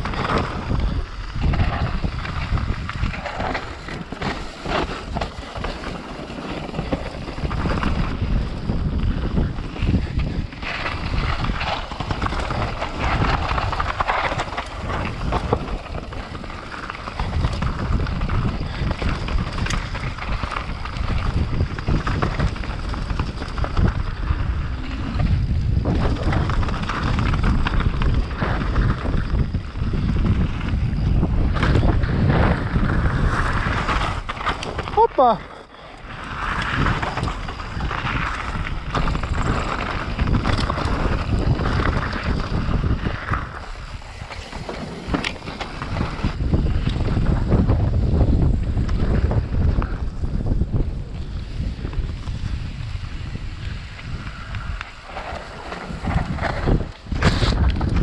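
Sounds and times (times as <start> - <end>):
wind buffeting microphone: 0.0 - 58.0.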